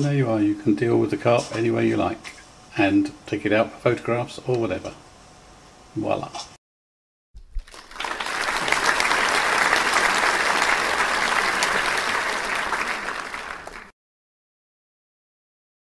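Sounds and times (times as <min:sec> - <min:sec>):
audience applause: 0:07.6 - 0:13.9.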